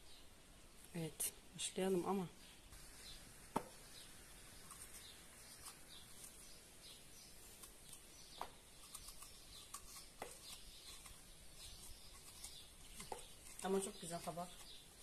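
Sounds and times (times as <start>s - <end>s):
corer scraping zucchini: 3.0s - 15.0s.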